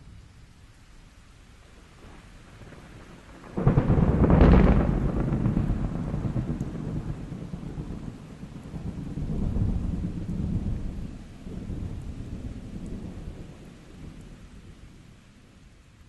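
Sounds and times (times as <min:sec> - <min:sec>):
steady rain: 0:00.0 - 0:16.0
thunder rolling: 0:02.0 - 0:14.2.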